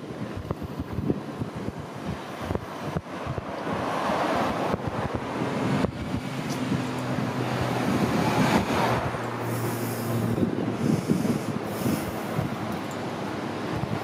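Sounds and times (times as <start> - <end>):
street traffic: 0.0 - 14.0
vehicle engine humming: 0.0 - 14.0.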